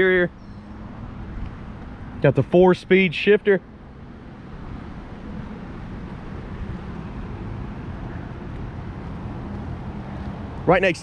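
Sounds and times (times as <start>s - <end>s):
low rumbling outdoor noise: 0.0s - 11.0s.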